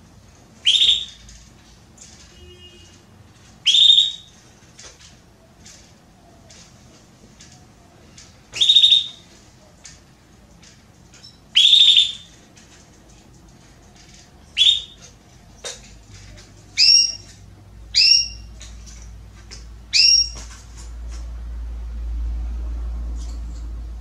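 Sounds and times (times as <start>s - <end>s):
canary calls: 0.6s - 1.2s, 3.6s - 4.4s, 8.5s - 9.3s, 11.2s - 12.4s, 14.5s - 15.1s, 16.8s - 18.6s, 19.9s - 20.5s.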